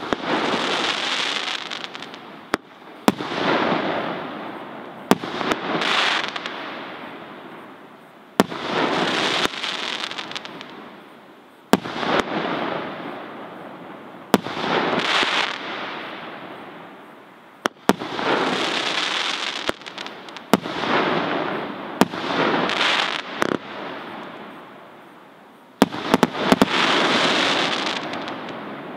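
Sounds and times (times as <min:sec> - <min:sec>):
firework crackling: 0:00.0 - 0:28.9.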